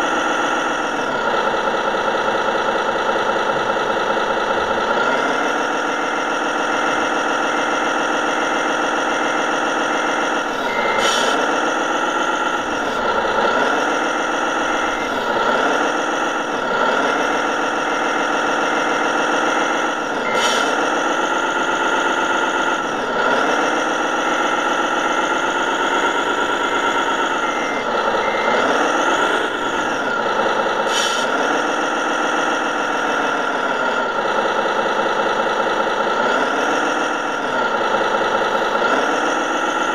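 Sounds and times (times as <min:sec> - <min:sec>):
simulated diesel truck engine: 0:00.0 - 0:39.9.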